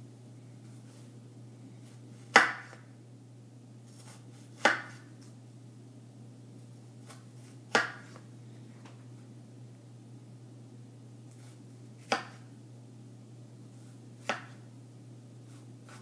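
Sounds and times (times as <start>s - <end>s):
knife cutting onion: 2.2s - 2.8s, 3.9s - 5.2s, 7.0s - 8.2s, 11.3s - 12.5s, 15.5s - 16.0s.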